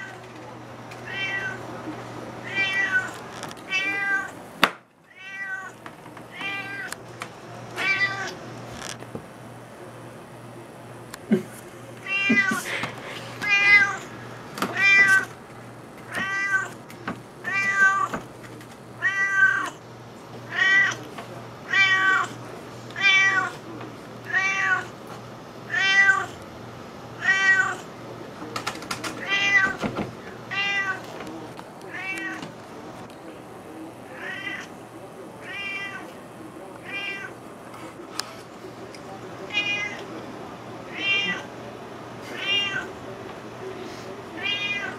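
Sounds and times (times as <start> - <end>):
cat meowing: 1.0 - 1.6, 2.4 - 3.1, 3.7 - 4.4, 5.1 - 7.0, 7.8 - 8.4, 13.4 - 14.1, 16.1 - 16.8, 17.4 - 18.2, 19.0 - 19.8, 20.5 - 21.0, 21.7 - 22.3, 23.0 - 23.6, 24.3 - 24.9, 25.7 - 26.4, 27.2 - 27.8, 29.2 - 29.8, 30.5 - 31.0, 31.9 - 32.5, 34.1 - 34.7, 35.4 - 36.1, 36.8 - 37.4, 40.9 - 41.5, 42.3 - 42.9, 44.4 - 44.9.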